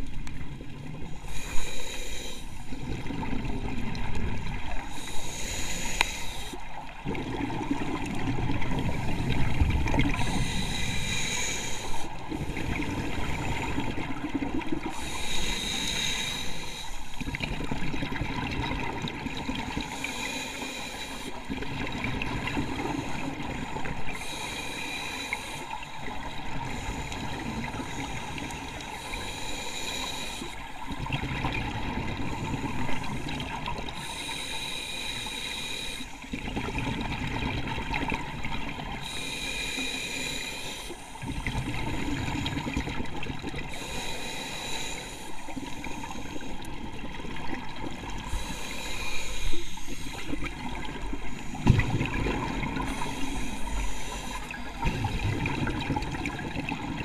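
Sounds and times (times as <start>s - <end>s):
regulator hissing inhale: 1.2s - 3.0s, 4.8s - 6.7s, 8.8s - 13.9s, 14.8s - 17.4s, 19.7s - 21.6s, 22.5s - 31.0s, 32.1s - 36.3s, 38.9s - 42.9s, 43.6s - 46.8s, 48.1s - 55.6s
exhaled bubbles rumbling: 2.7s - 5.0s, 6.8s - 10.8s, 12.1s - 15.2s, 17.2s - 20.0s, 21.5s - 24.3s, 30.6s - 34.1s, 36.3s - 39.2s, 41.2s - 43.8s, 50.0s - 57.0s.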